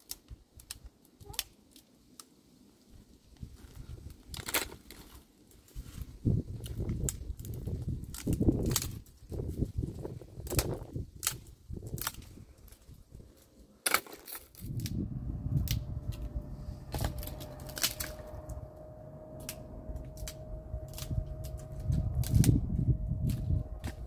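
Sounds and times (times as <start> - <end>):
sharp snaps and cracks: 0.0 - 15.0, 15.6 - 16.3, 16.9 - 18.6, 19.4 - 22.6
low rumbling noise: 14.5 - 24.0
faint steady hum: 14.6 - 24.0.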